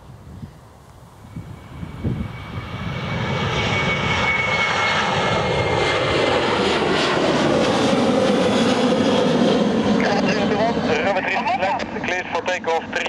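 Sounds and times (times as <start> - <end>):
jet engines at takeoff: 0.0 - 13.0.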